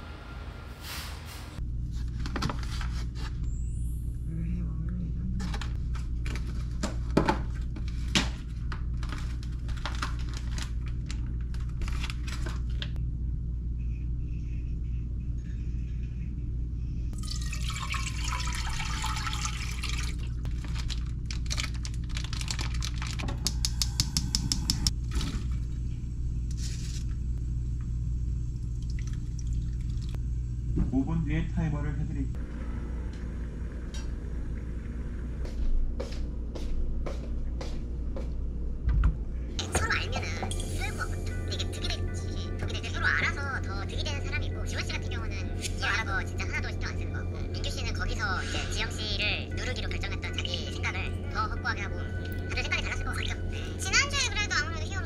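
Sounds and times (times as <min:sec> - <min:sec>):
steady low hum: 0:01.4 - 0:55.0
plastic packaging tearing: 0:08.9 - 0:13.0, 0:20.5 - 0:23.5.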